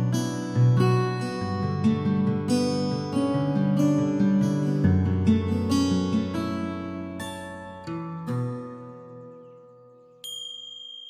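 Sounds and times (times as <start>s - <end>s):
plucked acoustic guitar: 0.0s - 9.9s.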